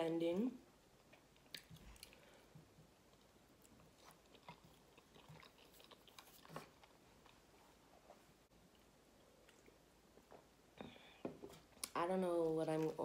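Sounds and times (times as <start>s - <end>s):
close-up chewing: 1.0s - 10.6s.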